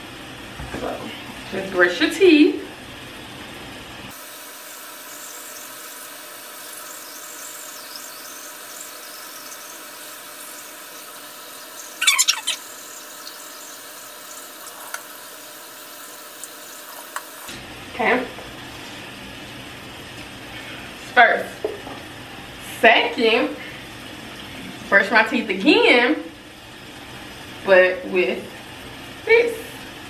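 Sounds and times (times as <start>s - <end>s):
short squeaky sound: 12.0s - 12.6s.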